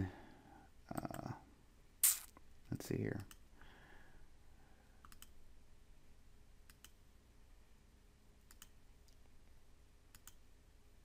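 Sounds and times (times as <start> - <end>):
computer mouse clicking: 5.0 - 5.4, 6.7 - 7.0, 8.5 - 9.2, 10.1 - 10.4.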